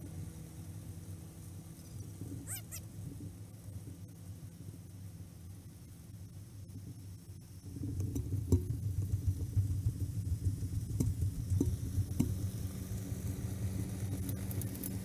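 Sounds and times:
tractor diesel engine running: 7.6 - 15.0.

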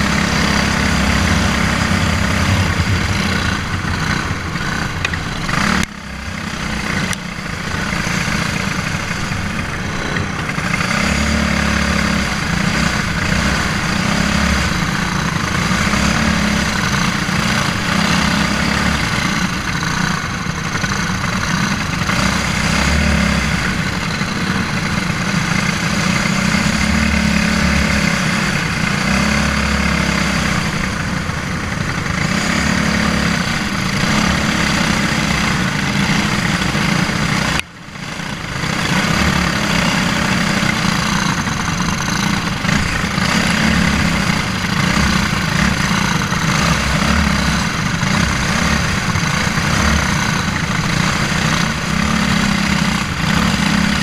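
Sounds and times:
rushing air: 0.0 - 20.1
kart engine racing: 0.0 - 54.0.

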